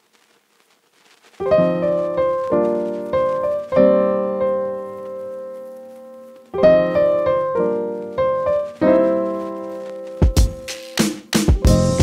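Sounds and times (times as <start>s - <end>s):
piano chords ringing: 1.4s - 10.7s.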